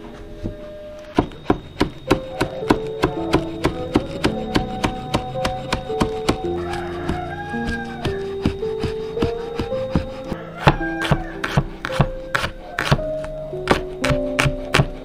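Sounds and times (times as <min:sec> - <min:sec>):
knife chopping on cutting board: 0:07.0 - 0:13.0, 0:13.7 - 0:15.0.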